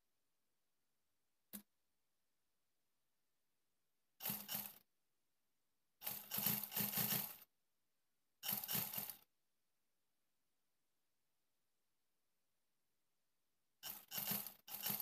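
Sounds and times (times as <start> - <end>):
sewing machine rattling: 4.2 - 4.8, 6.0 - 7.5, 8.4 - 9.3, 13.8 - 15.0.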